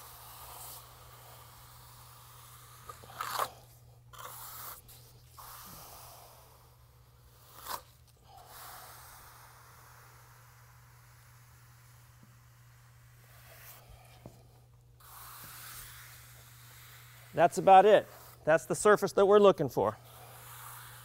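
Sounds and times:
trowel scraping across concrete: 0.6s - 3.6s, 15.0s - 19.1s.

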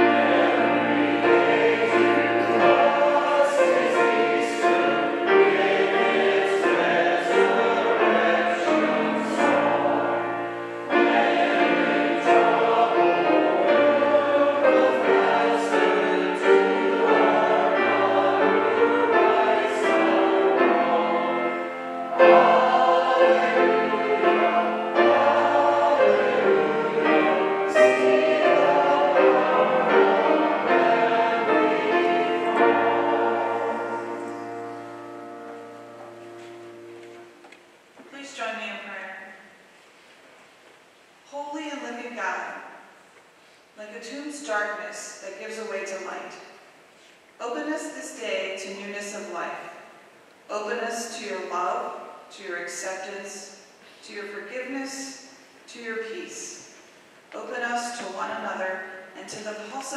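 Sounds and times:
congregation singing a hymn: 0.0s - 37.4s
piano accompaniment: 0.0s - 37.6s.

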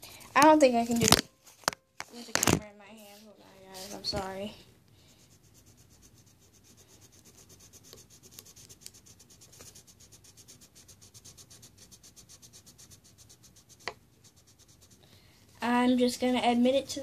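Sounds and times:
scribbling strokes: 3.0s - 4.4s, 5.0s - 15.1s.

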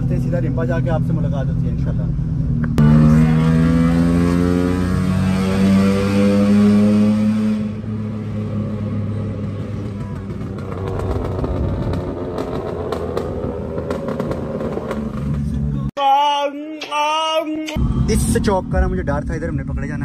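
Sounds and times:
road noise: 0.0s - 16.0s
car engine accelerating: 2.3s - 15.9s.

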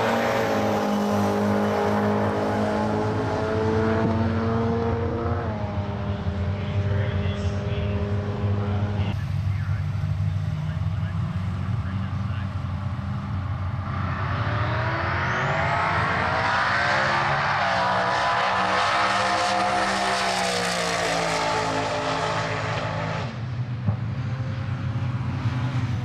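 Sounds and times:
race car engine accelerating: 0.0s - 26.0s
low engine rumble: 6.1s - 13.8s.

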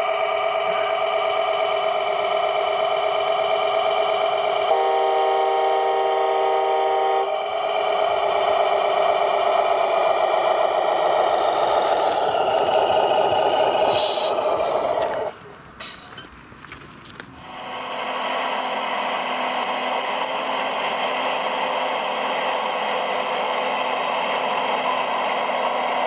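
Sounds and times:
diesel engine sound from speaker: 0.0s - 16.2s, 17.1s - 26.0s
truck horn blast: 4.7s - 7.4s.

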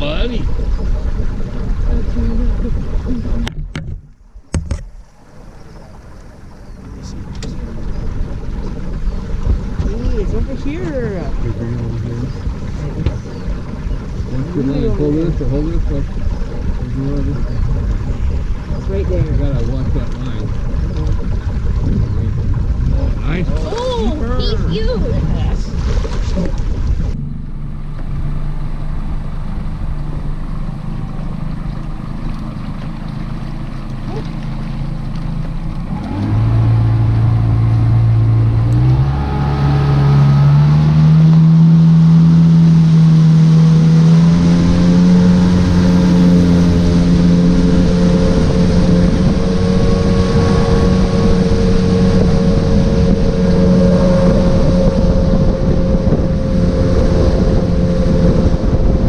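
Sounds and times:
outboard motor running: 0.0s - 59.0s.

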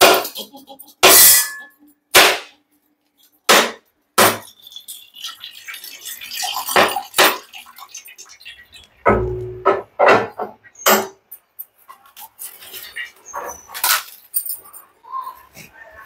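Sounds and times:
water trickling into metal pot: 4.2s - 9.6s.

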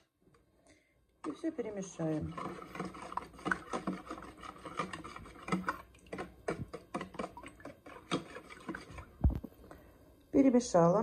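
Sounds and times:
whisk clicking against bowl: 1.2s - 9.2s.

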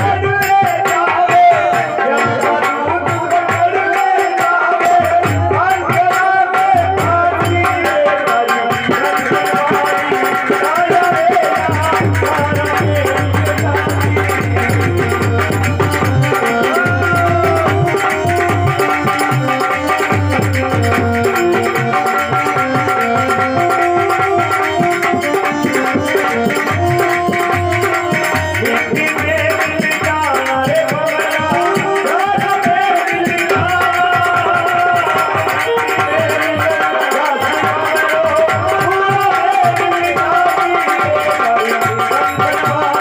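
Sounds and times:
harmonium melody: 0.0s - 43.0s
hand drum beat: 8.9s - 43.0s.

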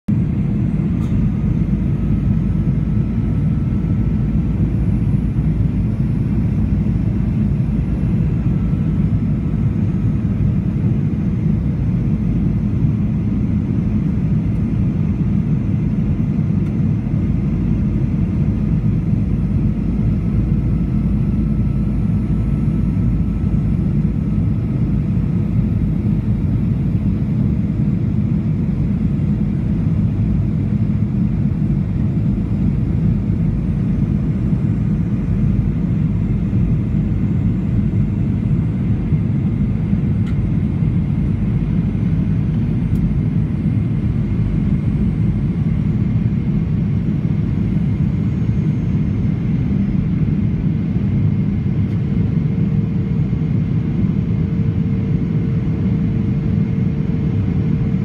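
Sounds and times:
airplane cabin engine rumble: 0.1s - 58.0s.

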